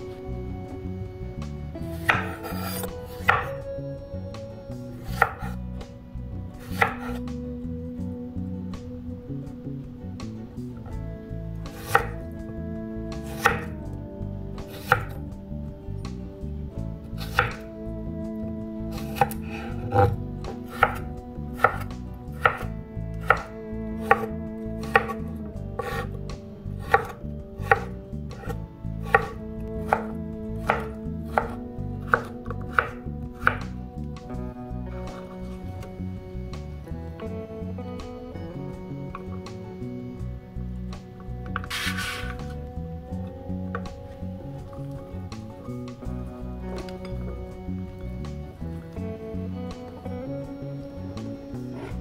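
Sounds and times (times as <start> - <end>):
knife chopping on wooden board: 2.0 - 3.5, 5.1 - 5.5, 6.7 - 7.2, 11.8 - 12.2, 13.3 - 13.7, 14.7 - 15.2, 17.2 - 17.6, 19.0 - 24.3, 24.9 - 25.2, 25.8 - 26.1, 26.8 - 33.7, 41.6 - 42.5.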